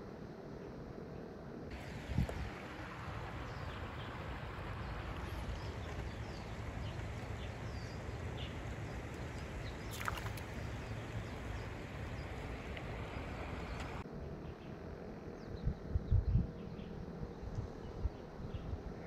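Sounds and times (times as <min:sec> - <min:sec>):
birds chirping: 0:01.7 - 0:14.0
creek rushing over rocks: 0:01.7 - 0:14.0.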